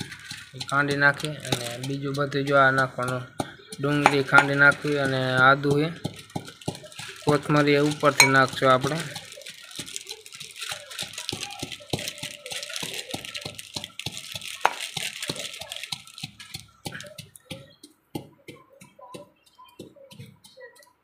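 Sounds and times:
pestle knocking in metal mortar: 0:00.9 - 0:09.0.

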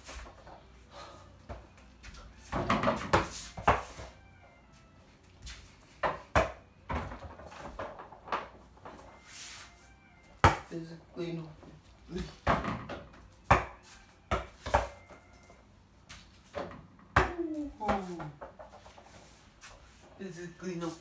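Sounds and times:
ball hitting mini basketball hoop: 0:02.5 - 0:03.9, 0:06.0 - 0:08.6, 0:10.4 - 0:10.7, 0:12.2 - 0:15.2, 0:16.1 - 0:18.9.

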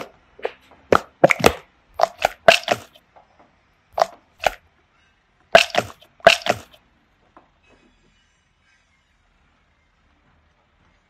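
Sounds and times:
rubber toy squelching: 0:00.0 - 0:03.0, 0:04.0 - 0:04.6, 0:05.5 - 0:06.8.

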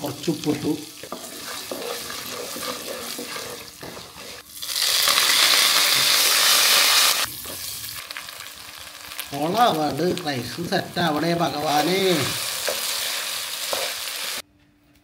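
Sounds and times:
leaves sizzling loudly in hot oil: 0:00.0 - 0:14.4
spices sizzling in oil: 0:00.0 - 0:14.4
wooden spatula stirring: 0:01.0 - 0:04.4.

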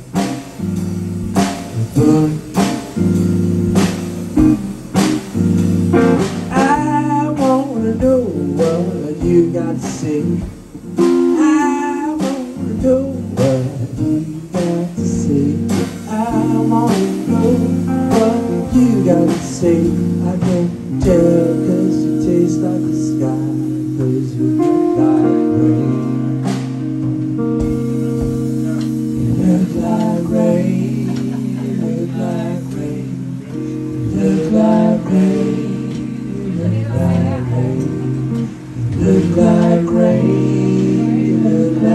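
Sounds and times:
drum kit playing: 0:00.0 - 0:41.9
electric guitar blues lead: 0:00.0 - 0:41.9.

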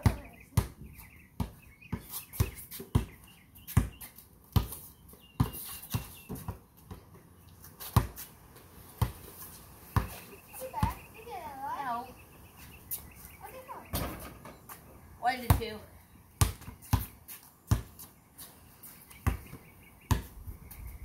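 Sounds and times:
basketball dribbling on concrete: 0:00.0 - 0:08.3, 0:09.0 - 0:09.3, 0:09.9 - 0:11.1, 0:15.4 - 0:15.8, 0:16.4 - 0:18.1, 0:19.2 - 0:20.4.

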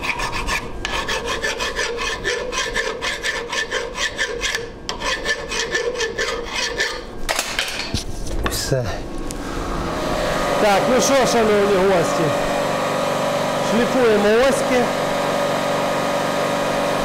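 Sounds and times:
hand file rasping on metal: 0:00.0 - 0:07.1.

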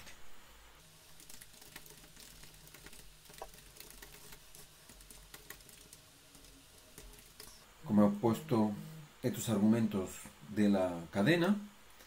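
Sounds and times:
low steady hum: 0:00.0 - 0:12.0
keyboard typing: 0:01.2 - 0:07.6.

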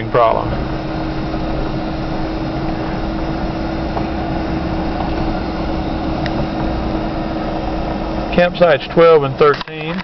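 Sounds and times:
vehicle driving on gravel: 0:02.6 - 0:10.0.

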